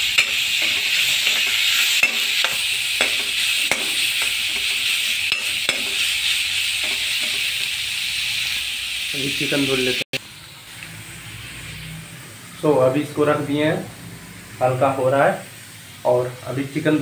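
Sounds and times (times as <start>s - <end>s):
spatula scraping a pan: 0.0s - 7.8s
vegetables sizzling in oil: 0.0s - 17.0s.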